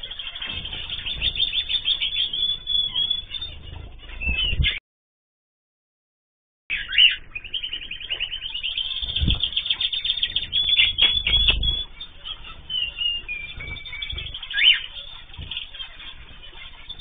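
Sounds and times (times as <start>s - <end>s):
small birds chirping: 0.0s - 4.8s, 6.7s - 17.0s
wings fluttering: 0.0s - 4.8s, 8.2s - 17.0s
dull thumps: 0.4s - 4.8s, 9.0s - 17.0s.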